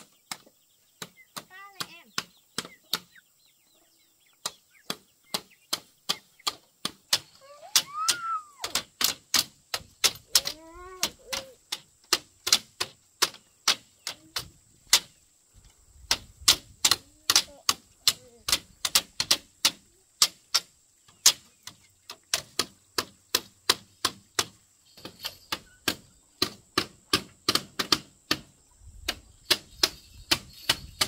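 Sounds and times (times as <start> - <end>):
tool striking bamboo: 4.4 - 8.0, 8.6 - 15.2, 16.0 - 31.0.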